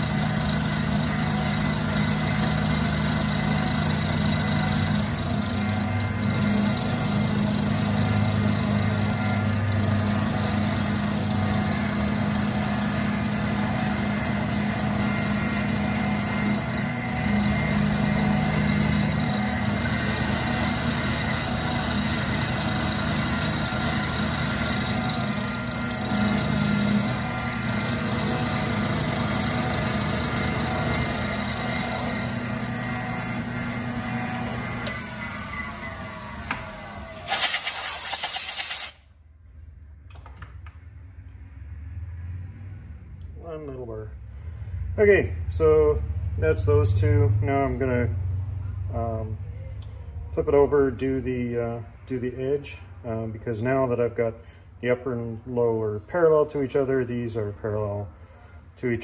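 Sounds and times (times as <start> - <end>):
milling machine motor whine: 0.0 - 38.9.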